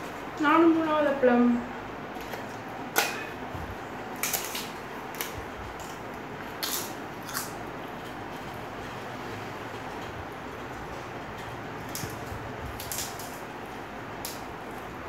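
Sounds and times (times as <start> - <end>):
papad crackling as crushed: 4.1 - 8.6, 11.7 - 15.0.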